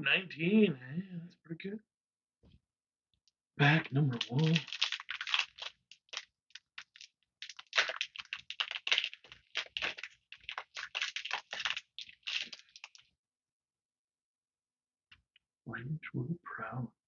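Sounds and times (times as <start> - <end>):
foil wrapper crinkling: 4.1 - 13.1.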